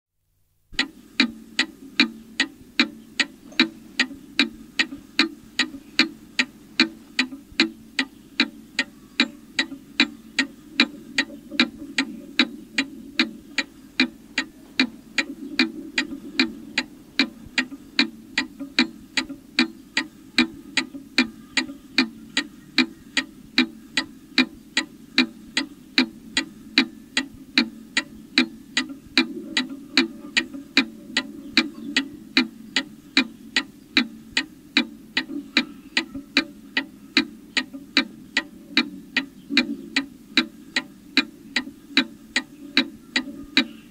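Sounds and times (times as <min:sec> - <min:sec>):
mantel clock ticking: 0:00.8 - 0:43.9.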